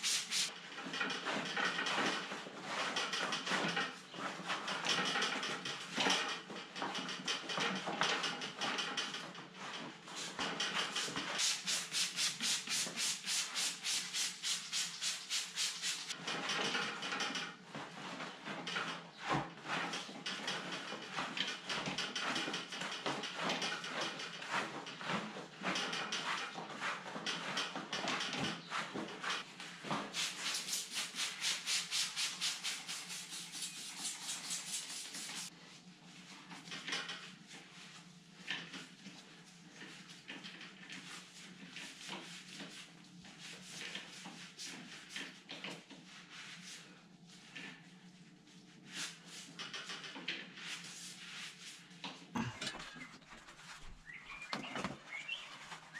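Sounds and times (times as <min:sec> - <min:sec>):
scrubbing on rubber tyre: 0:00.0 - 0:00.5, 0:10.2 - 0:16.2, 0:30.0 - 0:35.5.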